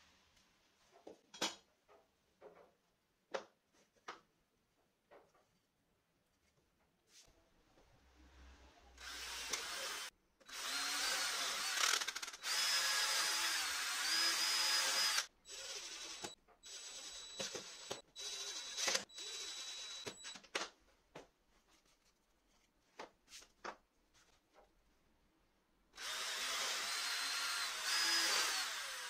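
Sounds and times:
electric drill running: 9.0 - 20.2, 26.0 - 29.0.

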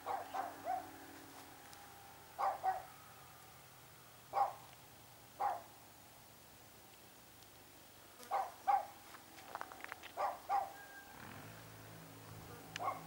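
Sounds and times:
dog barking: 0.0 - 0.9, 2.4 - 2.9, 4.3 - 4.6, 5.4 - 5.7, 8.3 - 9.0, 10.2 - 10.8, 12.4 - 13.0.

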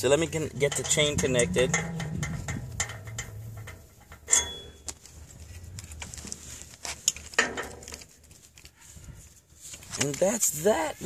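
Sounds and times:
metal chain clinking: 0.6 - 4.9.

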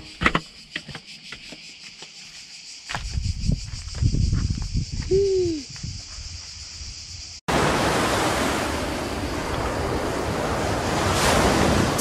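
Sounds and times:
cicadas buzzing: 0.0 - 12.0
wind rumble on microphone: 3.0 - 7.3.

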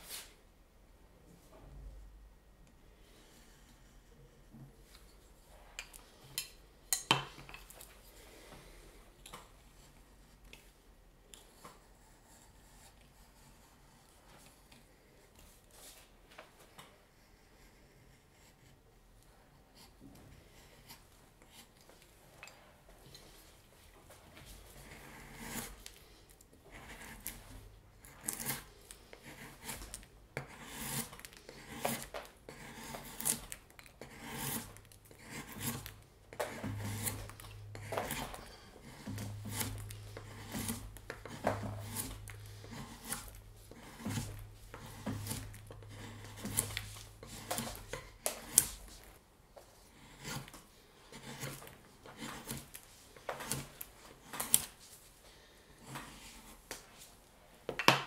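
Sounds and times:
carving tool shaving wood: 11.6 - 15.2, 24.7 - 49.2, 49.8 - 54.7, 55.8 - 56.5.

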